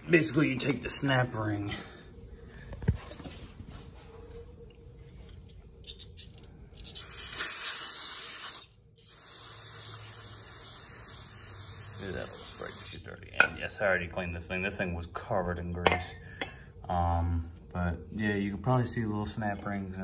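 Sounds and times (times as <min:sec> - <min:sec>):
aerosol spray hissing: 0:06.9 - 0:13.0.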